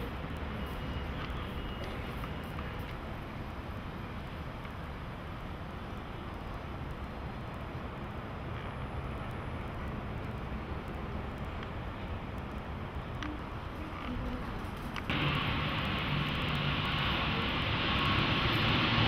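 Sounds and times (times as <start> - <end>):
hiss: 15.1 - 19.0.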